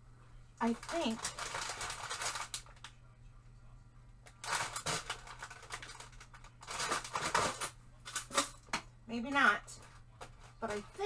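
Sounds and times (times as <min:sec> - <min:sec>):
craft supplies shuffling and clattering: 0:04.4 - 0:08.6.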